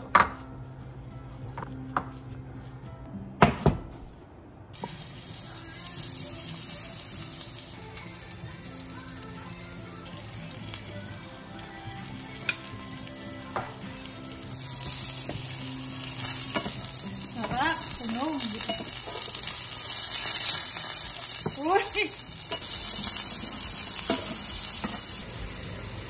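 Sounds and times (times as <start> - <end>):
background music: 0.0 - 26.0
meat sizzling in oil: 4.8 - 26.0.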